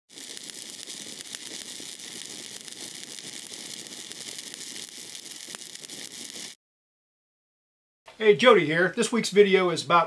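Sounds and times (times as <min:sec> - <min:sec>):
welding arc crackling: 0:00.0 - 0:06.6.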